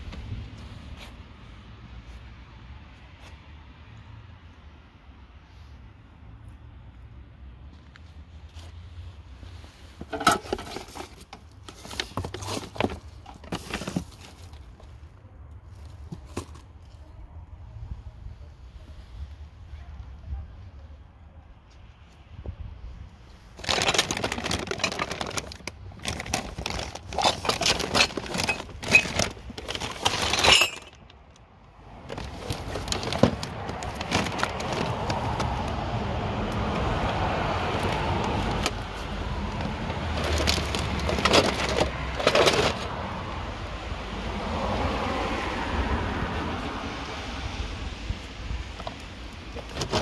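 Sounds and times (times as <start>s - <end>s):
plastic toys clattering: 9.9s - 14.9s, 23.5s - 31.4s, 32.0s - 35.8s, 37.7s - 43.0s, 48.8s - 50.0s
plastic bags crinkling: 10.0s - 14.8s, 23.5s - 31.4s, 32.0s - 35.9s, 36.7s - 43.1s.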